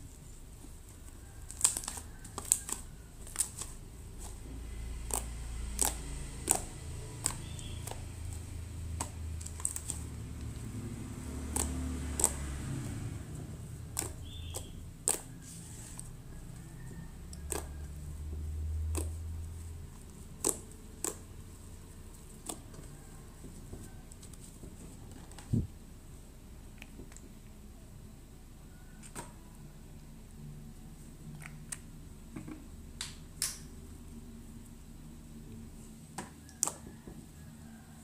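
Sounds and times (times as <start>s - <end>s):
slime clicking and popping: 5.0s - 10.0s, 11.4s - 12.6s, 13.9s - 15.3s, 17.4s - 17.8s, 18.8s - 19.4s, 20.3s - 21.3s, 36.5s - 36.8s.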